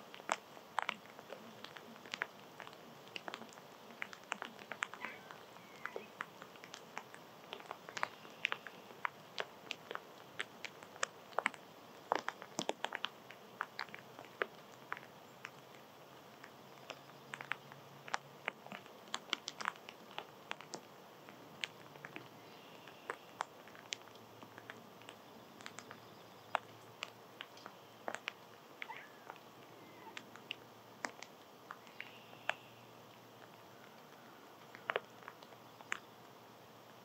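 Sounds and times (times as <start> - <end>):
small animals cracking seed: 0.1 - 36.1.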